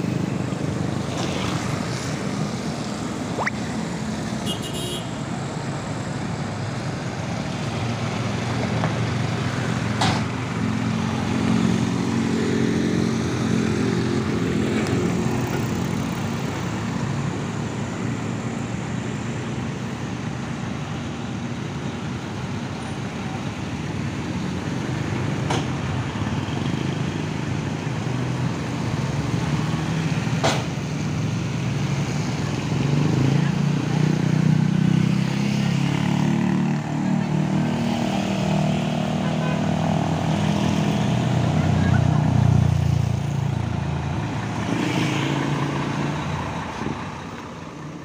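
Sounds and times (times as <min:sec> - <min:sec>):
truck diesel engine: 0:35.6 - 0:48.0.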